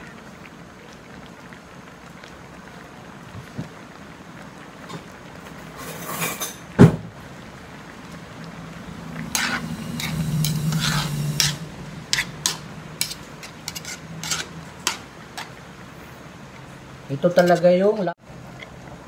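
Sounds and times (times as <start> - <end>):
metal spoon scraping a pan: 5.7 - 6.6, 9.3 - 15.6, 17.3 - 18.1
low hum: 8.1 - 14.8.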